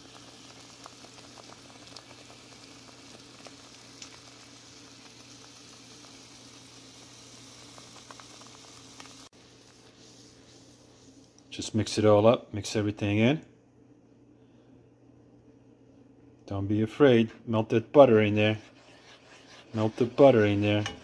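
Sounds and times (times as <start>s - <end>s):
sauce bubbling and popping: 0.0s - 11.5s.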